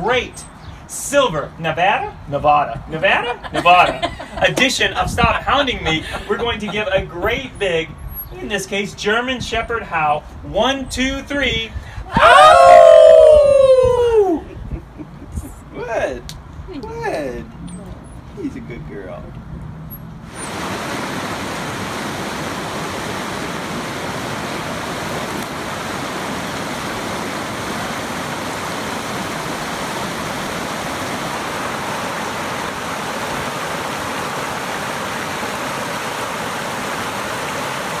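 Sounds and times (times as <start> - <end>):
creek rushing over rocks: 20.3 - 38.0.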